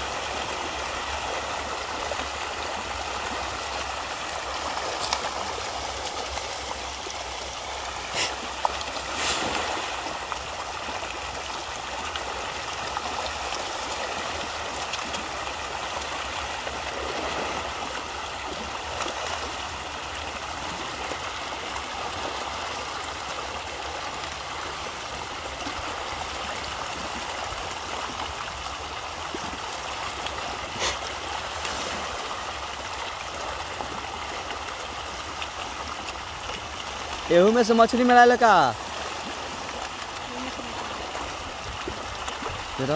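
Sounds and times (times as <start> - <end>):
fish thrashing and splashing: 0.3 - 21.2.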